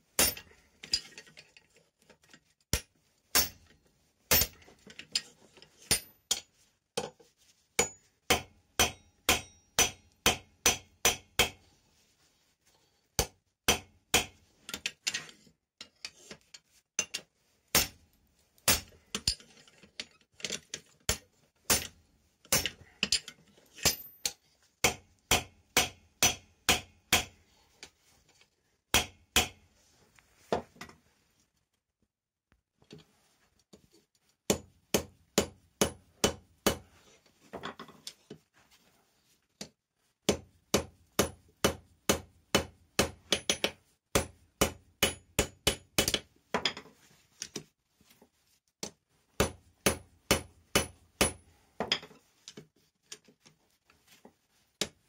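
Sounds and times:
hammer striking steel on anvil: 0.2s - 0.5s, 2.7s - 3.7s, 5.9s - 6.5s, 7.8s - 11.6s, 13.2s - 14.4s, 23.8s - 27.4s, 28.9s - 29.6s, 40.7s - 46.2s, 49.4s - 51.4s.

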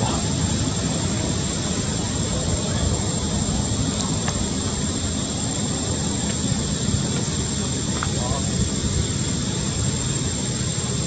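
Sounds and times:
low rumbling noise: 0.0s - 11.0s.

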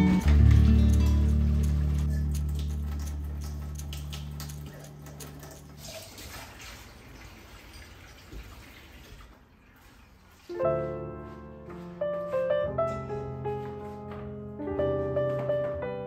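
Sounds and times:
background music: 0.0s - 4.7s
piano piece: 0.0s - 5.8s, 10.4s - 16.0s
tap water running into a sink: 2.5s - 10.0s.

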